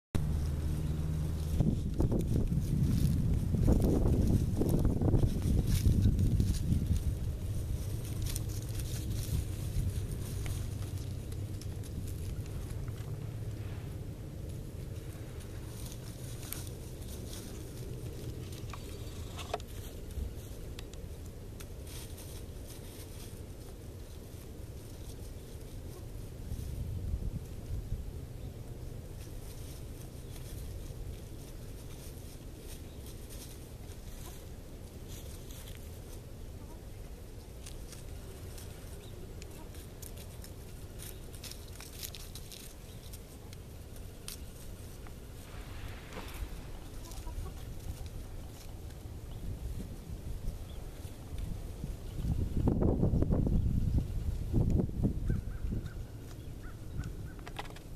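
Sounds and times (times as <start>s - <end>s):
wind rumble on microphone: 0.2s - 43.5s, 44.5s - 57.9s
chickens scratching in dry leaves: 0.2s - 57.9s.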